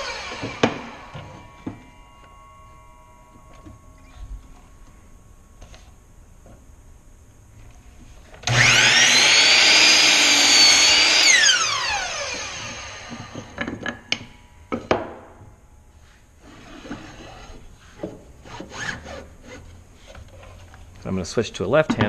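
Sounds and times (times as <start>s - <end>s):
miter saw blade whine: 0.0s - 6.5s, 8.4s - 15.4s
wood sliding on saw table: 16.0s - 19.1s.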